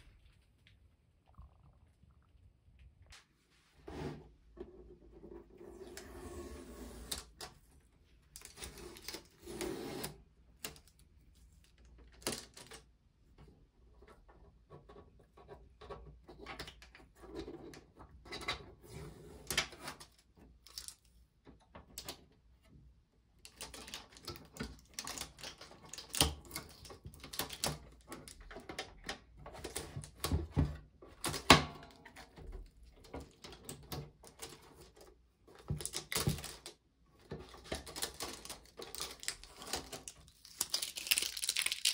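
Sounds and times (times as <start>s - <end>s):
plastic knocks and rustling: 24.1s - 40.3s
tape peeling off plastic: 38.0s - 41.9s.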